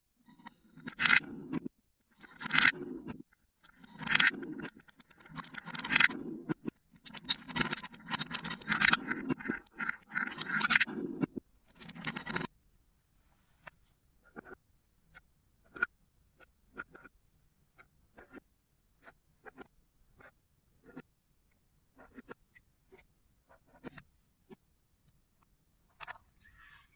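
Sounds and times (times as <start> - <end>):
balls rolling in wooden bowl: 0.4 - 12.5.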